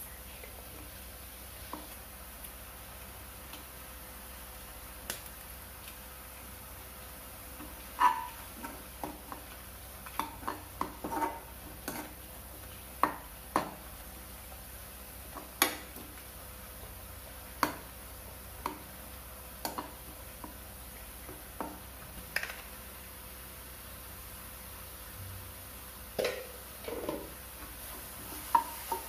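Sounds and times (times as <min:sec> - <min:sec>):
metal spoon scraping pan: 0:10.4 - 0:12.2.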